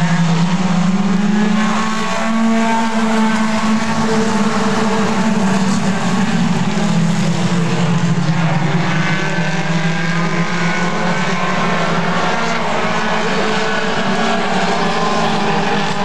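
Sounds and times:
race car engines running: 0:00.0 - 0:16.0.

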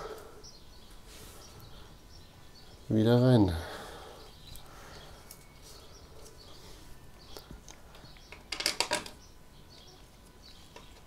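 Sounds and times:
small metallic clicks and rattles: 0:08.2 - 0:09.2.

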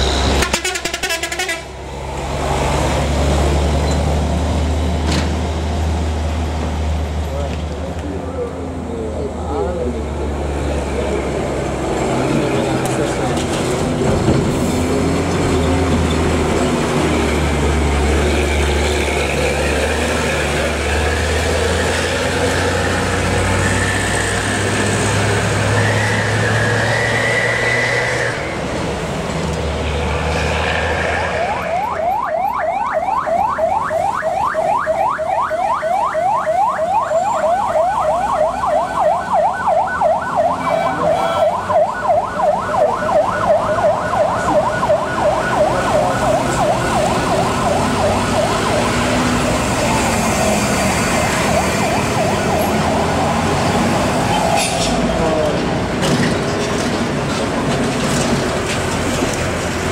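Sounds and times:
diesel truck engine under load: 0:00.0 - 0:31.7, 0:42.3 - 0:59.9
electronic siren yelping: 0:31.1 - 0:53.4.

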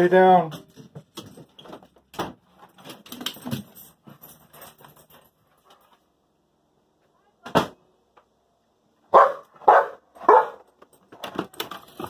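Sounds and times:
dog moving with jingling: 0:02.6 - 0:05.9.

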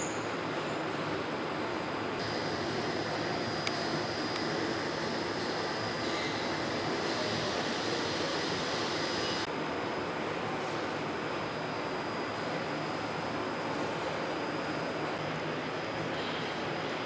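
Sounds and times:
thin high whine: 0:02.2 - 0:09.5
train hiss and hum: 0:02.2 - 0:17.0.

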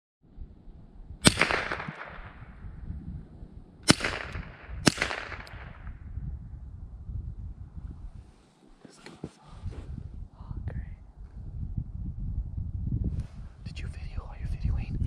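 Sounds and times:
rifle shots with echo: 0:01.2 - 0:02.6, 0:03.8 - 0:06.0.

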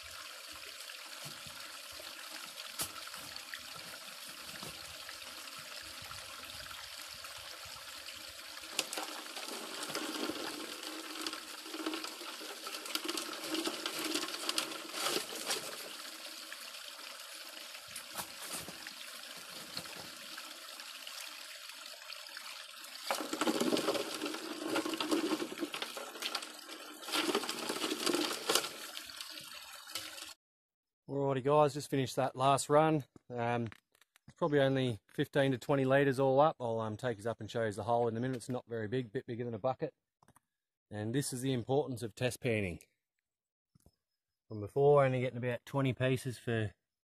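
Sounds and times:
water gushing through a sluice: 0:00.0 - 0:30.4
water splashing: 0:00.0 - 0:30.4
stones clicking and clattering: 0:08.7 - 0:15.9, 0:23.0 - 0:28.9.

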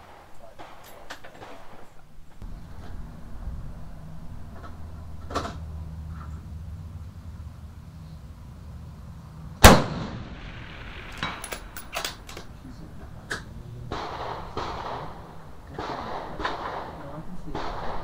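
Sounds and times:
rifle shot: 0:00.0 - 0:02.2, 0:09.6 - 0:12.6, 0:13.9 - 0:18.0
rifle bolt metallic clicks: 0:10.7 - 0:12.6.

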